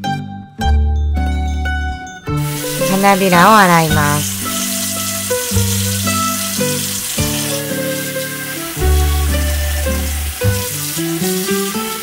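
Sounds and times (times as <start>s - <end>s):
background music held notes: 0.0s - 12.0s
tap water pouring into bowl: 2.4s - 2.9s, 4.2s - 12.0s.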